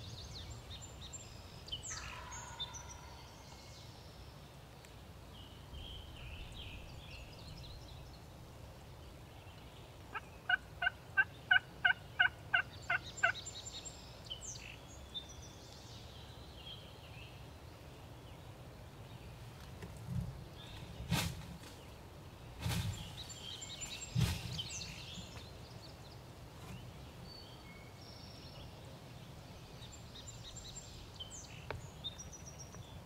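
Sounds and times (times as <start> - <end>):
songbirds chirping: 0.0 - 33.0
turkey calling: 10.1 - 13.4.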